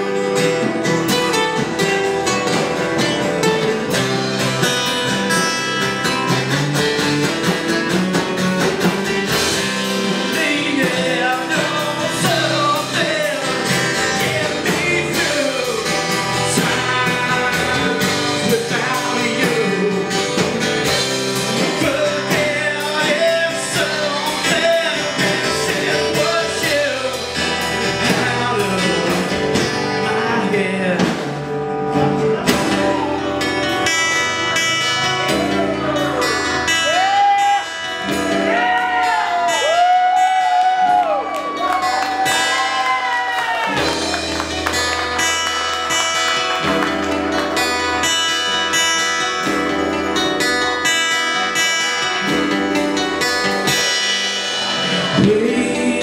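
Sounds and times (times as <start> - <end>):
acoustic guitars strumming: 0.0 - 56.0
man singing: 9.3 - 33.5, 35.0 - 37.8, 54.5 - 56.0.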